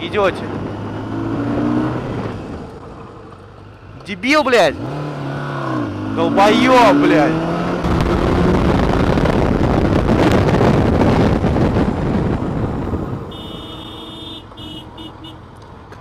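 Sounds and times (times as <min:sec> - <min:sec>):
wind buffeting microphone: 0:00.0 - 0:03.2, 0:07.3 - 0:13.4.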